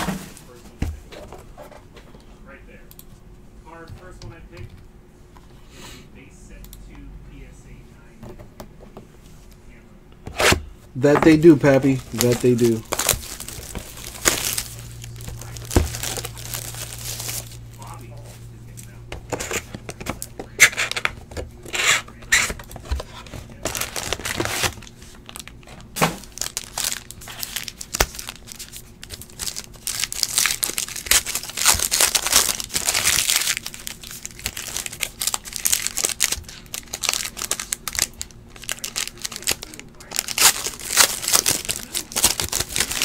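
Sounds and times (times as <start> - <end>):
foil wrappers crinkling and tearing: 11.0 - 18.1, 22.2 - 43.0.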